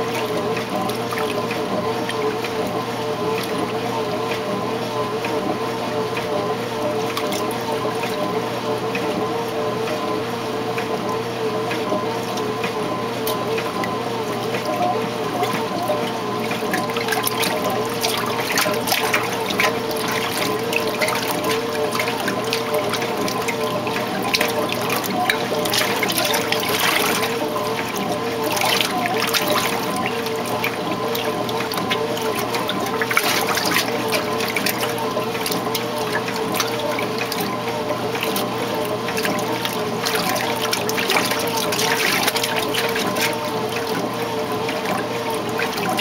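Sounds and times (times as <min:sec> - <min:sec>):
washer motor hum: 0:00.0 - 0:46.0
water sloshing in washer: 0:00.0 - 0:46.0.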